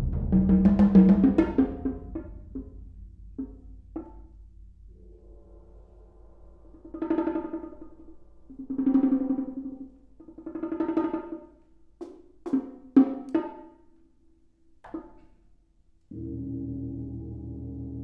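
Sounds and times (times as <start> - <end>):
drum rolls: 0.0 - 4.4.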